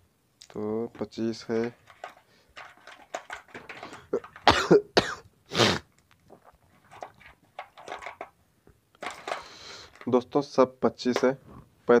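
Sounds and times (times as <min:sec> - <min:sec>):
capacitors rattling in plastic box: 0:01.4 - 0:04.8, 0:06.8 - 0:08.4, 0:09.0 - 0:10.2
man coughing: 0:04.4 - 0:05.8.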